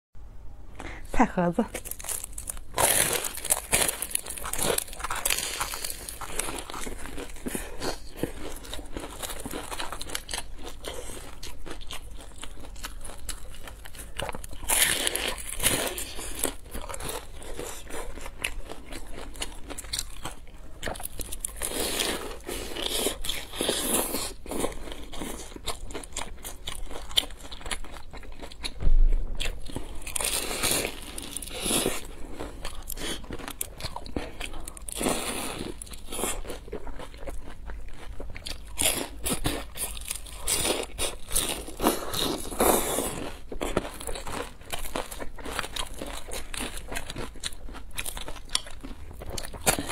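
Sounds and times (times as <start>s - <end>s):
crunching and chewing fried pastry: 1.6s - 49.9s
low thump: 28.7s - 29.6s.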